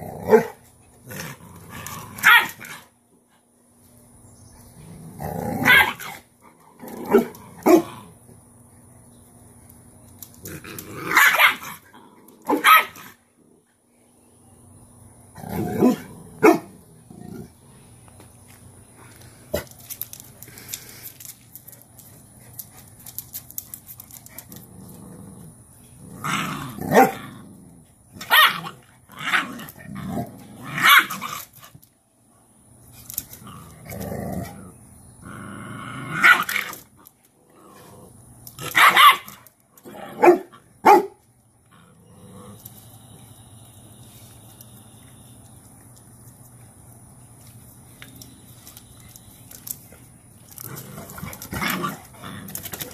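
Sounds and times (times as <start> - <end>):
puppies barking: 38.7 - 39.4, 40.2 - 41.2
puppies growling: 41.6 - 42.8.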